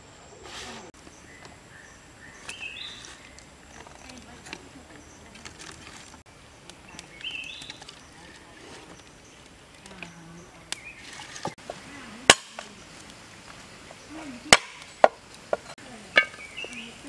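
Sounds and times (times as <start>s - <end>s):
cleaver chopping on wooden board: 12.3s - 12.6s, 14.5s - 16.3s.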